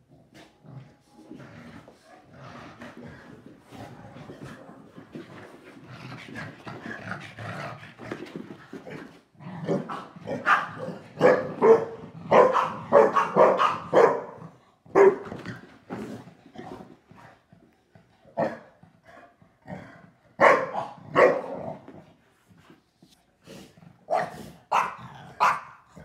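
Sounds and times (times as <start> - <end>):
dogs growling: 0.0 - 22.2
dogs barking: 10.3 - 15.2, 20.4 - 21.6, 24.1 - 25.8.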